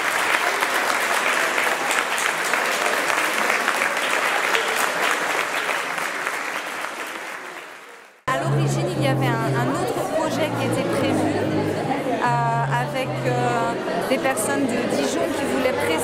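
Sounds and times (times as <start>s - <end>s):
audience clapping: 0.0s - 8.3s.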